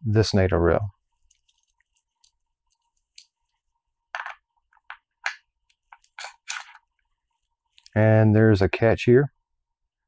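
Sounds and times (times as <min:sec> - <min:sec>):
metal parts scraping and clicking: 0:05.9 - 0:06.8.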